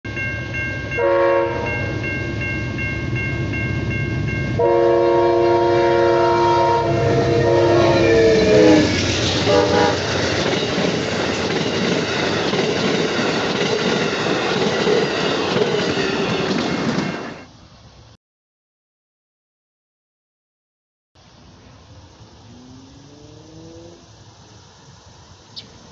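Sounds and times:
crossing bell ringing: 0.0s - 17.4s
train wheels rumbling on rail: 0.1s - 17.5s
locomotive horn blasts: 0.9s - 1.9s, 4.5s - 10.2s.

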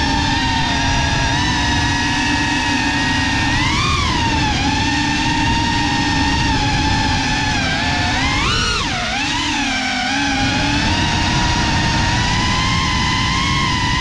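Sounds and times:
drone motors whining: 0.0s - 14.0s.

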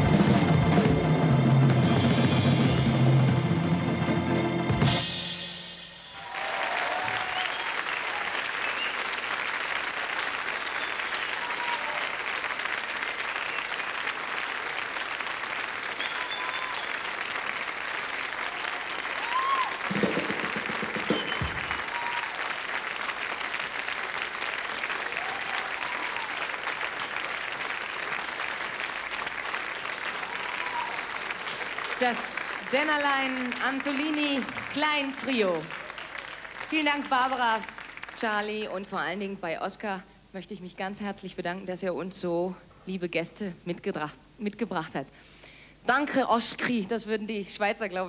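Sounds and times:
audience applauding: 6.2s - 38.7s
whistles: 7.0s - 7.8s, 8.6s - 9.2s, 10.6s - 12.0s, 13.4s - 13.8s, 15.9s - 17.1s, 21.0s - 22.3s.

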